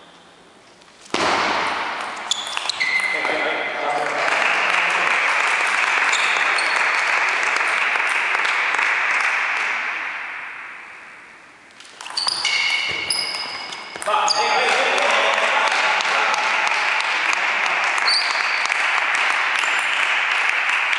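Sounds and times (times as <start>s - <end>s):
people clapping: 2.6s - 10.2s, 14.5s - 20.9s
table tennis ball hits and bounces: 11.9s - 14.1s.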